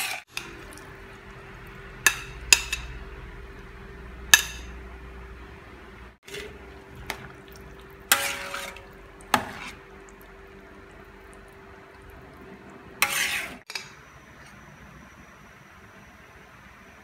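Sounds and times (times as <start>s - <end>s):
spoon scraping and clanking pan: 2.0s - 3.0s, 6.2s - 7.3s, 8.0s - 9.9s, 13.0s - 13.9s.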